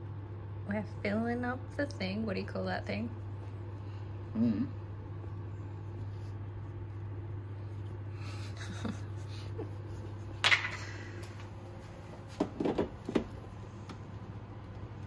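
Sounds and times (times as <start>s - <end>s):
steady low hum: 0.0s - 15.0s
portafilter knocking: 12.4s - 13.4s.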